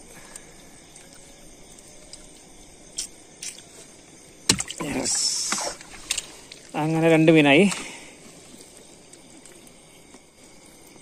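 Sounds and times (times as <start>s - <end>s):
net splashing into water: 4.4s - 6.2s.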